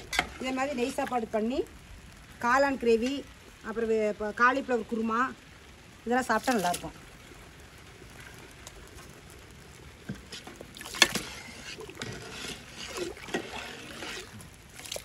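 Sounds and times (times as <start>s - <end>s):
ladle stirring boiling water: 0.0s - 1.6s, 6.2s - 15.0s
water sloshing and splashing: 0.0s - 3.3s, 6.1s - 15.0s.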